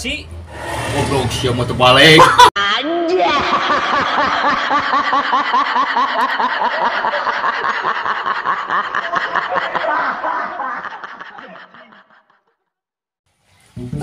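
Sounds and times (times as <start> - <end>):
person laughing: 2.2 - 12.5.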